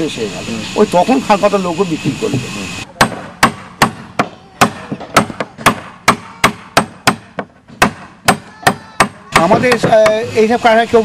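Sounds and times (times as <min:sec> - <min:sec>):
hammer blows on wood: 0:02.3 - 0:10.9.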